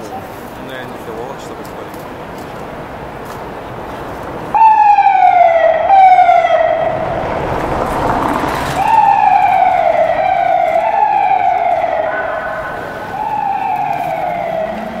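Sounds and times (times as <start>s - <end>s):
ambulance siren: 4.4s - 15.0s
vehicle passing by: 5.2s - 15.0s.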